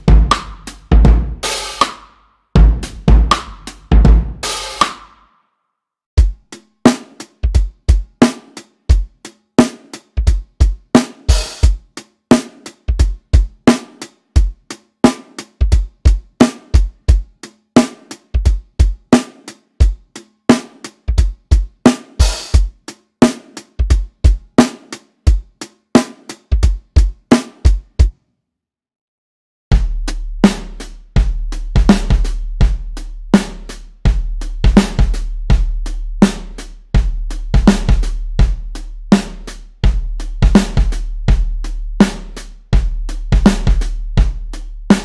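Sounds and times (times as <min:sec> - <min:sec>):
deep ringing kick drum: 0:00.0 - 0:01.4, 0:02.6 - 0:04.5
drum kit groove: 0:00.0 - 0:05.3, 0:06.2 - 0:28.2, 0:29.7 - 0:45.0.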